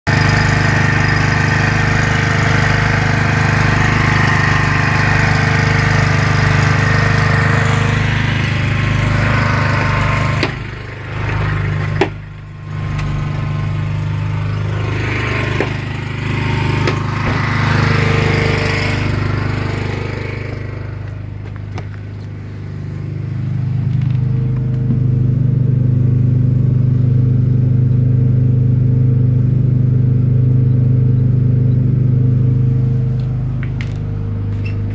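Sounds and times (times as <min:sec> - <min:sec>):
generator engine running: 0:00.1 - 0:34.9
sharp knocks: 0:15.3 - 0:15.9, 0:16.7 - 0:17.5.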